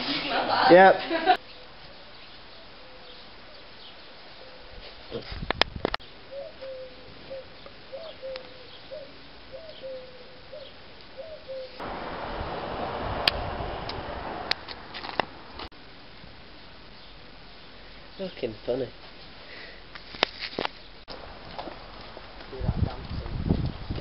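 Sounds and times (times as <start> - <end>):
pigeon cooing: 6.3 - 11.8
loud steady hiss: 11.8 - 14.7.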